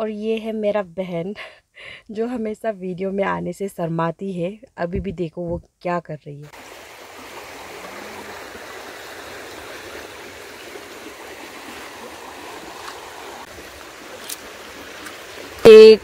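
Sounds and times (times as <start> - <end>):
river rushing over rocks: 6.6 - 15.6.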